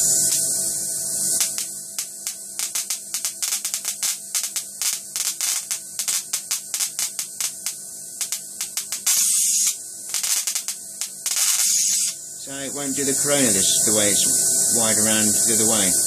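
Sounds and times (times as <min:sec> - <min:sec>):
electric arc hissing: 0:00.0 - 0:16.0
electrical hum: 0:00.0 - 0:16.0
electrical snapping: 0:01.3 - 0:12.2.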